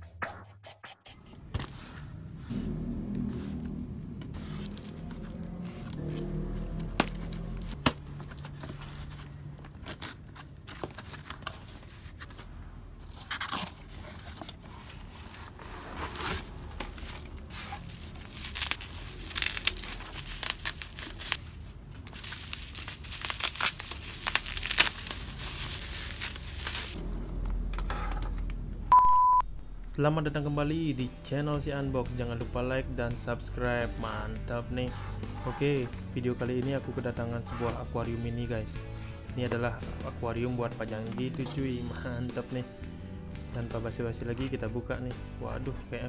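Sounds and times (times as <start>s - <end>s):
cardboard and tape tearing: 13.1s - 14.6s, 15.4s - 21.4s, 22.1s - 27.0s
faint music: 29.7s - 46.0s.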